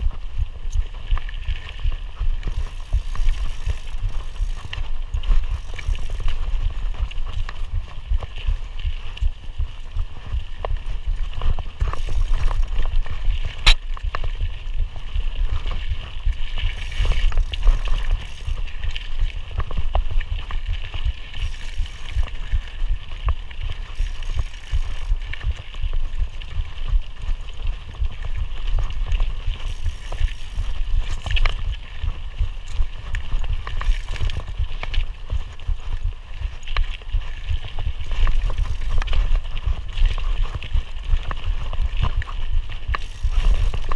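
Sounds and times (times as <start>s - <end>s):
bike tyres rumbling on dirt: 0.0s - 43.9s
bike clicks and knocks: 0.6s - 9.3s, 10.2s - 25.8s, 27.9s - 43.9s.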